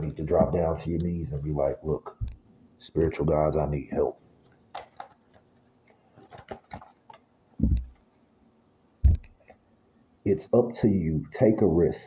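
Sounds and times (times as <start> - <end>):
cards clicking and tapping: 4.7 - 5.4, 6.2 - 8.0
low thumps: 7.6 - 8.0, 9.0 - 9.3.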